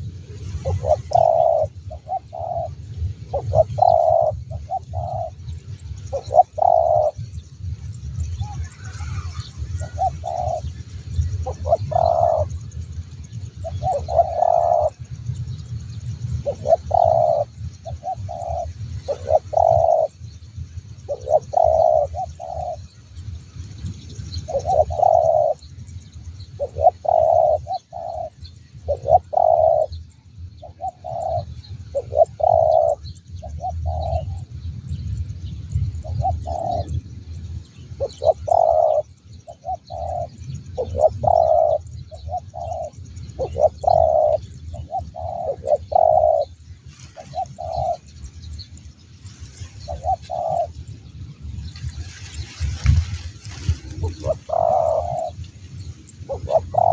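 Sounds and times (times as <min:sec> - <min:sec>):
dove cooing: 0:00.6 - 0:07.3, 0:08.4 - 0:12.7, 0:13.5 - 0:15.1, 0:16.4 - 0:20.2, 0:21.1 - 0:22.8, 0:24.3 - 0:25.7, 0:26.6 - 0:30.0, 0:30.6 - 0:34.5, 0:36.0 - 0:37.0, 0:38.0 - 0:48.2, 0:49.8 - 0:51.0, 0:51.6 - 0:56.9.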